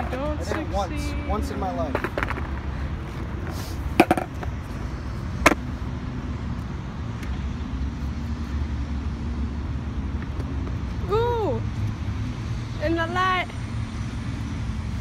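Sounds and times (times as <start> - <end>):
skateboard clacking on concrete: 4.0 - 4.5.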